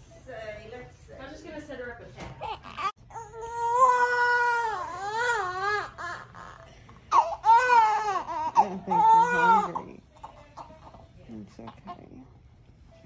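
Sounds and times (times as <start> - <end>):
newborn baby crying: 2.4 - 11.0.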